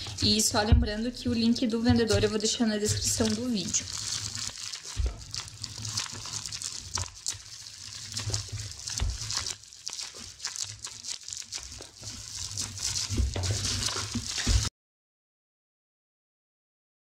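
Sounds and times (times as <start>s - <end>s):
bubble wrap crinkling: 0.0s - 0.7s, 1.3s - 14.7s
low handling bumps: 0.0s - 3.5s.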